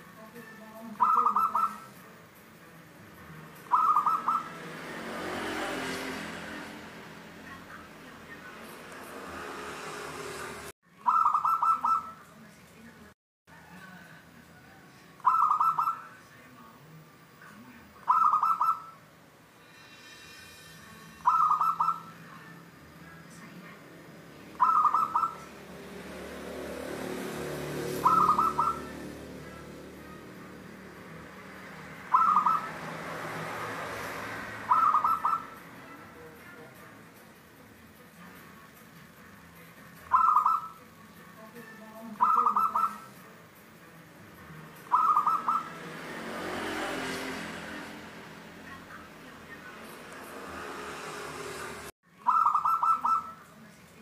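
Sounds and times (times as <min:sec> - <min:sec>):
rush of background noise: 0:00.0 - 0:54.0
dove cooing: 0:01.0 - 0:01.9, 0:03.7 - 0:04.6, 0:11.1 - 0:12.2, 0:15.2 - 0:16.0, 0:18.0 - 0:19.0, 0:21.2 - 0:22.2, 0:24.6 - 0:25.5, 0:27.8 - 0:30.6, 0:32.0 - 0:33.0, 0:34.6 - 0:35.6, 0:40.1 - 0:40.8, 0:42.2 - 0:43.1, 0:44.9 - 0:45.8, 0:52.3 - 0:53.4.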